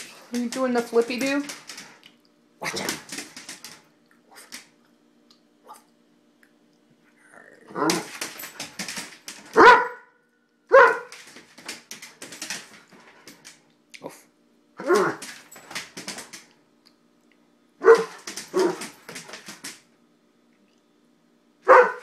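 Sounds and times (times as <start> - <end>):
claws clicking on tile floor: 0.0 - 4.8, 7.8 - 9.7, 10.8 - 13.7, 14.8 - 16.6, 17.9 - 19.9
dog yipping: 9.6 - 10.1, 10.7 - 11.1, 17.8 - 18.8, 21.7 - 22.0
dog barking: 9.6 - 11.1, 14.8 - 15.2, 17.8 - 18.8, 21.6 - 22.0.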